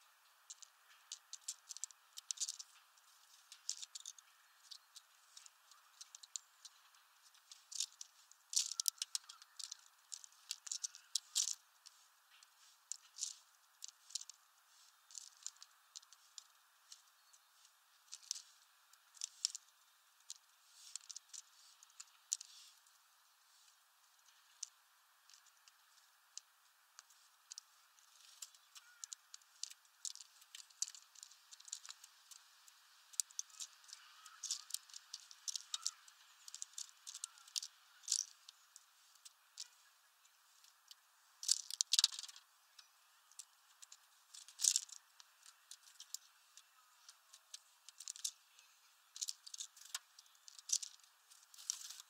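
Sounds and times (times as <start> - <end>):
sparrows cracking seeds: 0.0 - 52.0.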